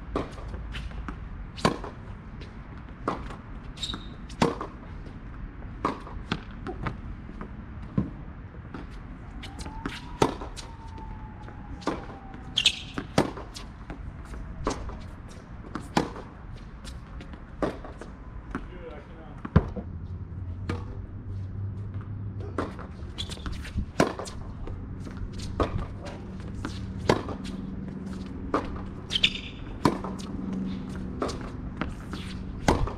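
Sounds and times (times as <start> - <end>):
rackets striking tennis ball: 2.8 - 4.9, 5.7 - 8.1, 8.7 - 10.7, 11.8 - 18.7, 22.0 - 32.9
ball bouncing on hard court: 11.8 - 14.0, 26.6 - 32.9.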